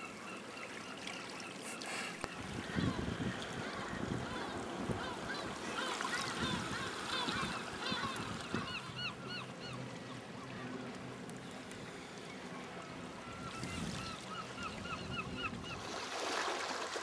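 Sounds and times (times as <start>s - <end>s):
birds honking: 3.6s - 10.0s.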